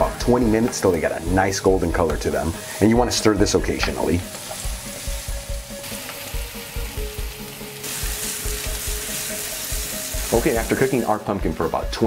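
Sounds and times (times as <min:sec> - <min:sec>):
pumpkin sizzling in oil: 0:00.0 - 0:11.8.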